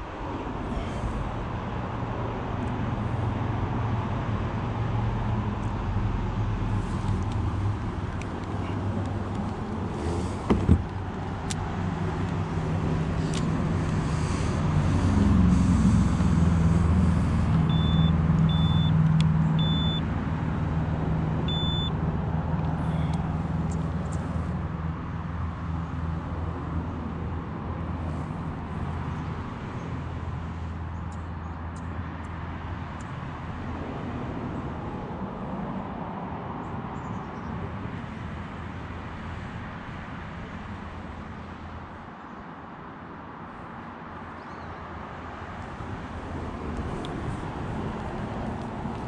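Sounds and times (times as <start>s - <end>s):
low engine drone: 0.0s - 31.1s
sharp thump: 10.4s - 10.9s
short high beeps: 17.7s - 19.0s, 19.6s - 20.0s, 21.5s - 21.9s.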